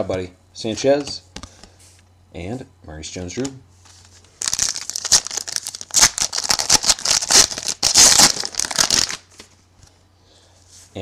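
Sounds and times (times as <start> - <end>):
card pack wrapper tearing: 4.4 - 9.3.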